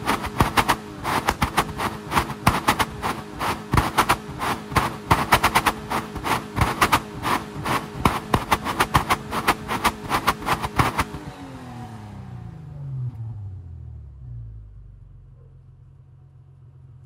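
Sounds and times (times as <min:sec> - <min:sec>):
sharp knocks: 0:00.0 - 0:11.2
car engine revving and idling: 0:00.0 - 0:17.0.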